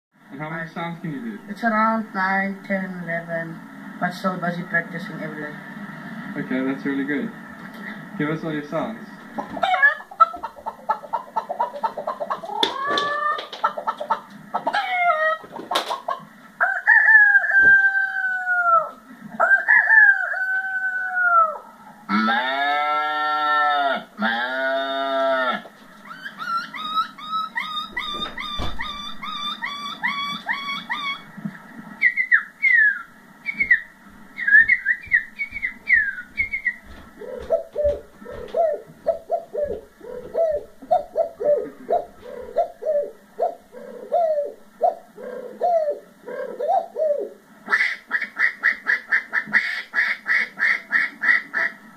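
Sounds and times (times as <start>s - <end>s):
man imitating animal calls: 21.2s - 31.2s.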